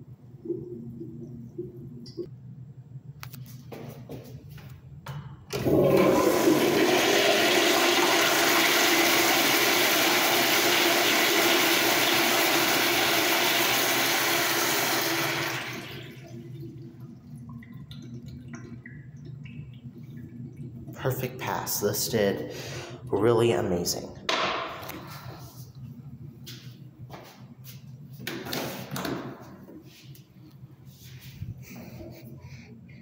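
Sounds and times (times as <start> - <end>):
toilet flushing: 5.5 - 23.2
cistern refill trickle: 5.6 - 23.2.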